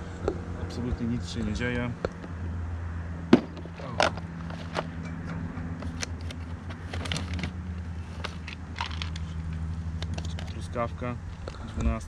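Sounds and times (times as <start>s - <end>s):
low hum: 0.0s - 10.5s
rummaging in plastic tackle box: 5.8s - 9.4s.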